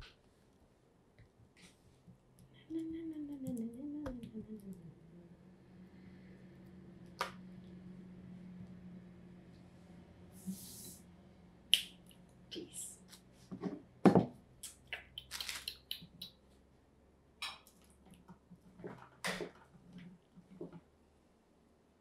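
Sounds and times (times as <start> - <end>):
short hiss: 10.4 - 11.0.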